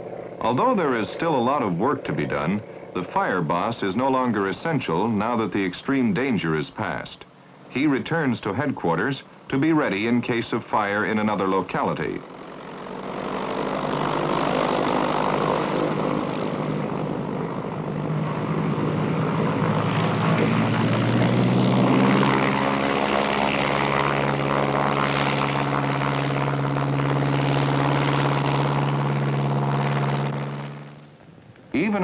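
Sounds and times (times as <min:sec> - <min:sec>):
floatplane engine and propeller: 0:00.0 - 0:32.0.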